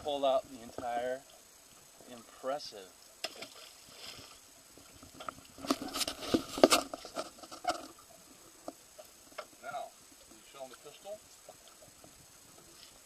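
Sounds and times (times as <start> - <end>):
faint water splash: 3.2 - 7.1.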